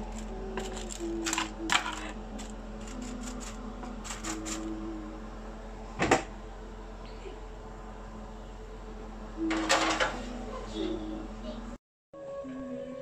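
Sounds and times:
foil crinkling: 0:00.0 - 0:04.6.

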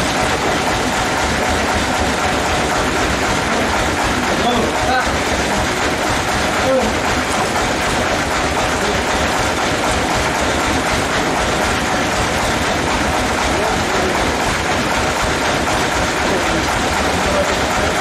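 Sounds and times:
sawmill machinery running: 0:00.0 - 0:18.0
faint workers' voices: 0:03.2 - 0:07.6, 0:13.1 - 0:18.0.

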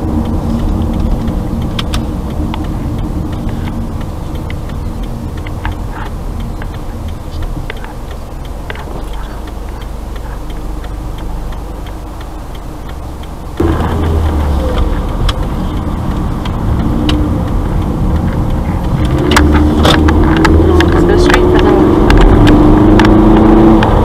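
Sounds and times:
car engine: 0:00.0 - 0:24.0
turn signal ticking: 0:00.0 - 0:24.0.

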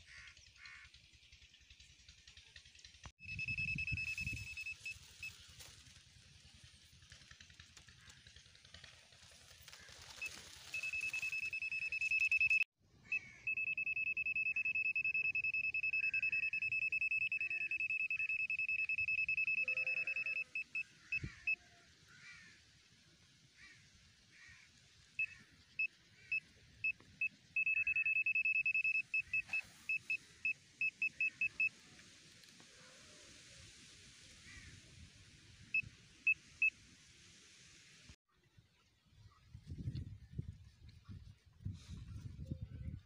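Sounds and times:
multimeter high beeping: 0:03.2 - 0:05.4, 0:10.2 - 0:21.6, 0:25.2 - 0:31.7.

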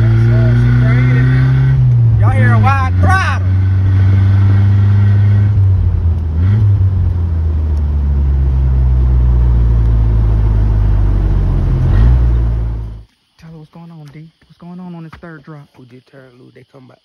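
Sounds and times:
car engine and road drone: 0:00.0 - 0:13.1.

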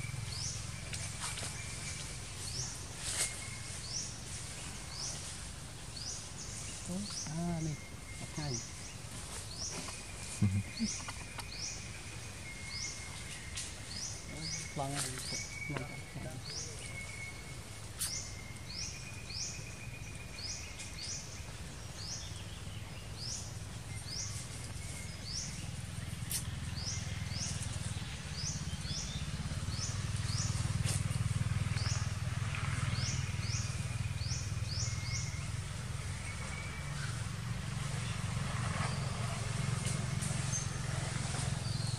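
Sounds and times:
bird chirping: 0:00.0 - 0:41.9
low steady rumble: 0:00.0 - 0:41.9.

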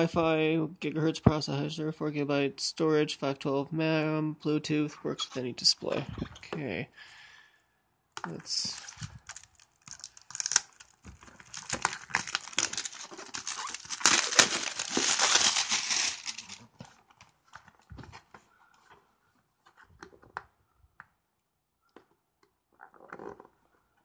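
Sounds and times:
shrink wrap tearing and crinkling: 0:08.3 - 0:17.2.

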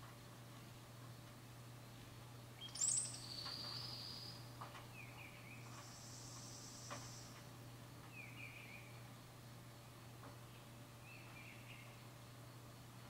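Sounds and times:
songbirds calling: 0:02.6 - 0:09.2, 0:10.3 - 0:12.6.

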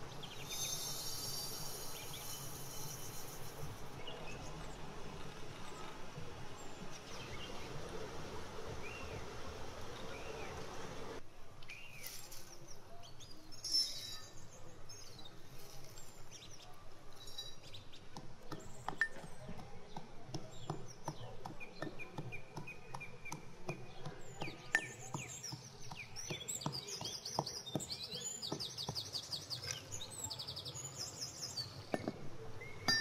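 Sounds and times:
birds chirping: 0:08.7 - 0:12.1, 0:16.0 - 0:33.0.

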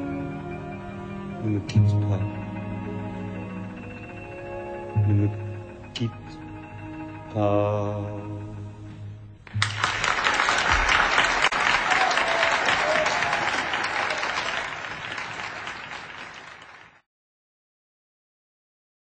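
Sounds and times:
audience applauding: 0:09.5 - 0:17.1.

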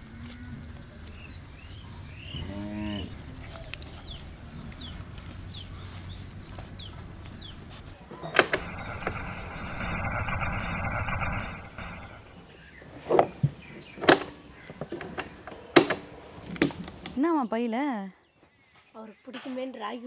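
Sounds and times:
radio clicks: 0:08.2 - 0:12.4
radio static with whistle: 0:08.2 - 0:12.5.

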